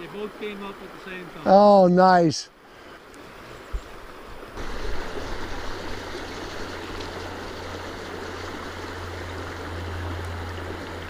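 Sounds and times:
river water rushing over rocks: 0:03.0 - 0:11.0.

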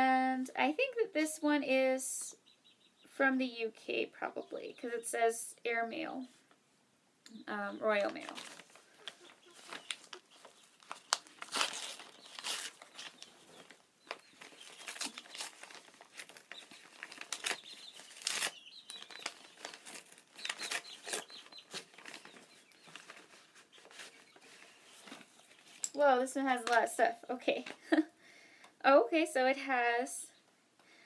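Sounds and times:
paper envelope tearing and rustling: 0:08.0 - 0:25.7.

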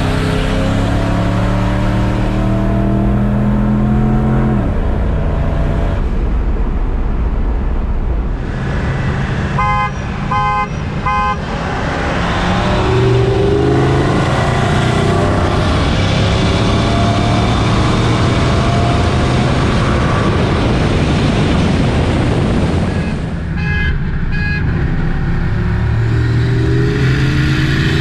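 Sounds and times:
pickup engine accelerating: 0:00.0 - 0:23.3
road and wind noise: 0:00.0 - 0:28.0
car horn toots: 0:09.5 - 0:11.5, 0:23.5 - 0:24.7.

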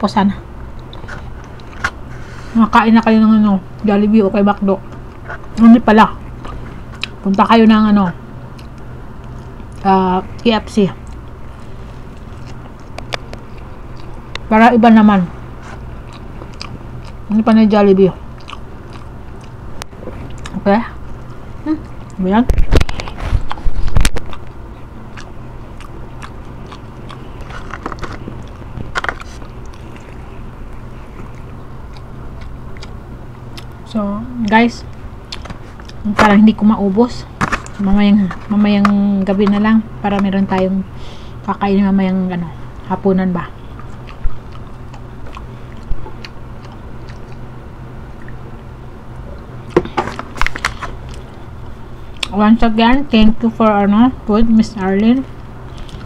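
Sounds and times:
steady low hum: 0:00.0 - 0:56.0
person chewing and biting: 0:00.7 - 0:02.3, 0:06.2 - 0:07.3, 0:08.5 - 0:10.4, 0:11.0 - 0:14.5, 0:15.6 - 0:17.3, 0:18.2 - 0:33.9, 0:34.9 - 0:36.1, 0:43.6 - 0:48.7, 0:49.4 - 0:52.3.

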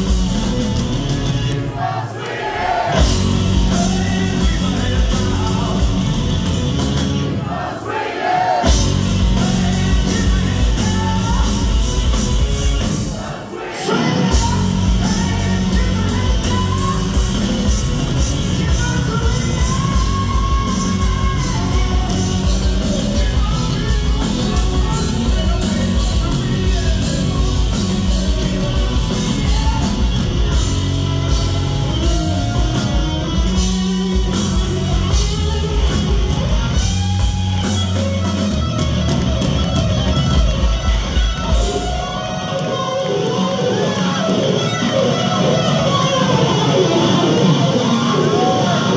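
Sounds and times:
bass guitar: 0:00.0 - 0:01.8, 0:02.8 - 0:07.4, 0:08.6 - 0:13.3, 0:14.0 - 0:48.9
electric guitar: 0:00.0 - 0:01.8, 0:02.9 - 0:07.4, 0:08.6 - 0:48.9
drums: 0:00.0 - 0:48.9
man singing: 0:03.5 - 0:06.1, 0:09.2 - 0:12.0, 0:13.8 - 0:30.6.

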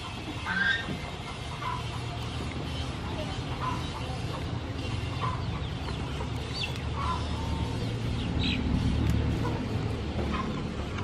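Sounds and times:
chickens clucking: 0:00.0 - 0:11.0.

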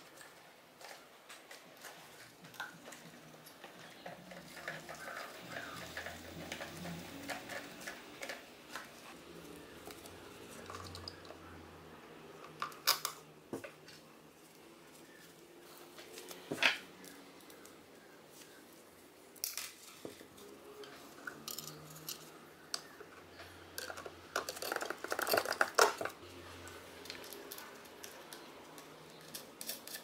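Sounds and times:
clicks and rattles in metal box: 0:23.8 - 0:26.2.

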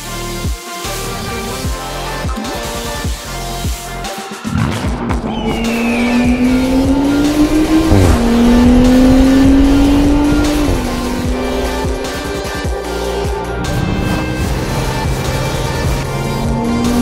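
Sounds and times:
music: 0:00.0 - 0:17.0
car engine accelerating hard: 0:04.7 - 0:17.0.

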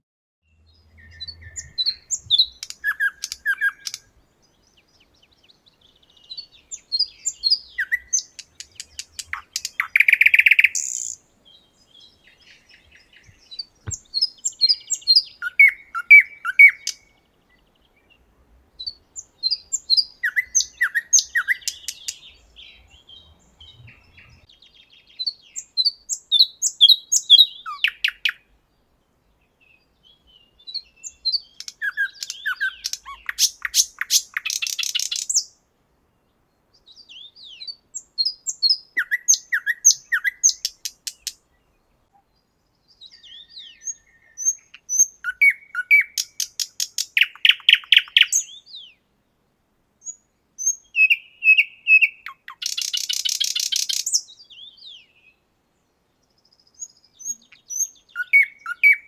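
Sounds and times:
nightingale singing: 0:00.4 - 0:59.0
loud rattling bird trill: 0:31.6 - 0:35.4, 0:52.6 - 0:54.2.

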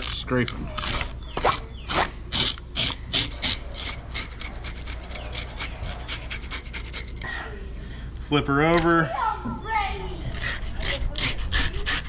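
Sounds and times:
fish scaler scraping scales: 0:00.0 - 0:07.4.

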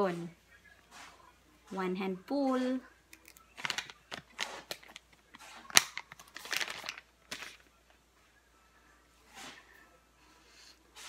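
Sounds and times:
plastic wipes pack rustling: 0:03.2 - 0:07.8.

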